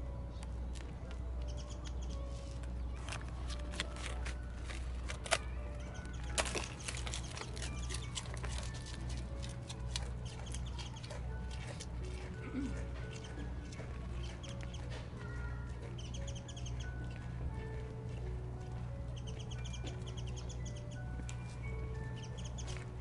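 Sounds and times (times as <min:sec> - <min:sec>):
deer chewing rice cracker: 0:02.1 - 0:18.9
cracker snapping: 0:03.0 - 0:05.5, 0:06.2 - 0:10.1.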